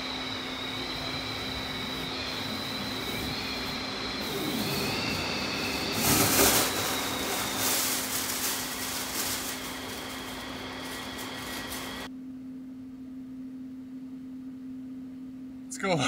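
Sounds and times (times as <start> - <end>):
air rushing from vent: 0.0 - 12.1
steady low hum: 0.0 - 16.0
plastic bag whooshing: 5.8 - 12.1.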